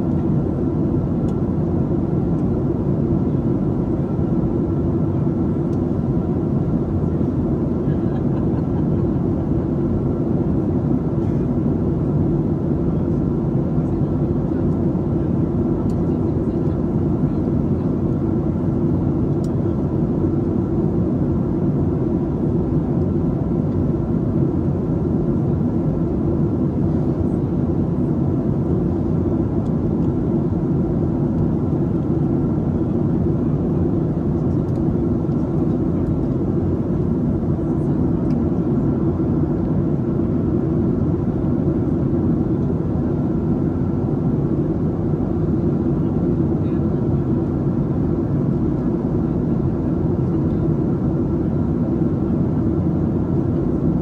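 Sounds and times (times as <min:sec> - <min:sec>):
aircraft engines rumbling: 0:00.0 - 0:54.0.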